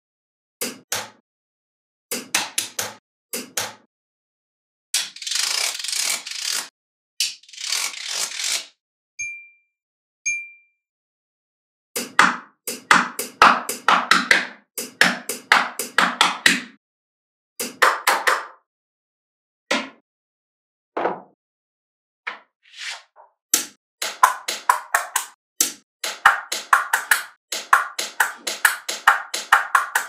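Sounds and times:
magnetic balls clicking: 0:24.0 - 0:30.0.

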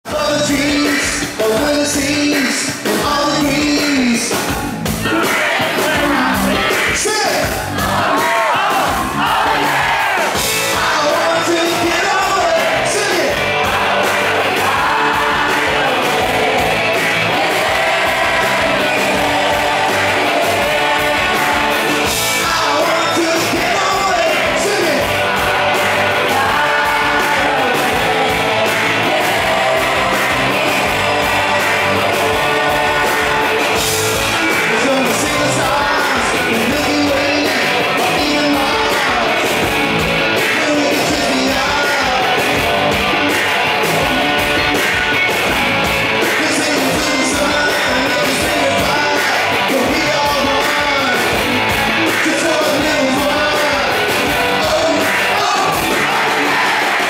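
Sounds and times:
man singing: 0:00.0 - 0:07.6, 0:10.7 - 0:13.4, 0:17.3 - 0:33.6, 0:34.4 - 0:39.7, 0:40.4 - 0:42.6, 0:46.2 - 0:51.4, 0:52.1 - 0:57.0
live rock band: 0:00.0 - 0:57.0.

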